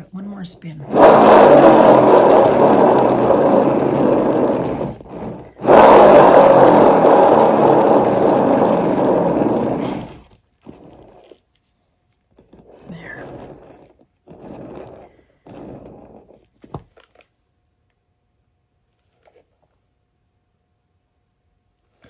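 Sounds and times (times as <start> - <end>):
spinning turntable whirring: 0.7 - 11.3, 12.4 - 16.4.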